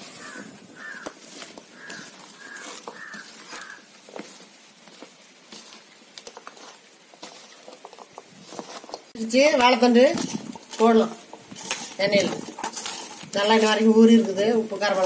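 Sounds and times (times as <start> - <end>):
wet squelching of hand mixing: 0.0 - 15.0.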